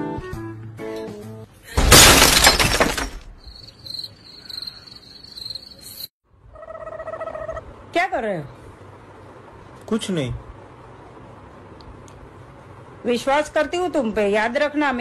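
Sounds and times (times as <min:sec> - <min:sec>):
glass shattering: 0:01.8 - 0:03.4
crickets chirping: 0:03.4 - 0:06.1.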